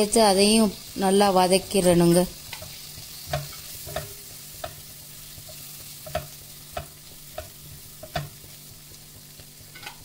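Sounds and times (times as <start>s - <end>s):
soft sizzle of frying: 0.0s - 10.0s
spatula stirring and knocking pot: 2.5s - 8.6s.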